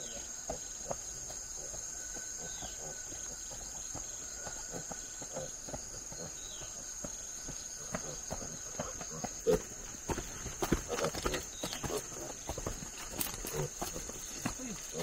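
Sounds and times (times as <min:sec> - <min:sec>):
high-pitched insect drone: 0:00.0 - 0:15.0.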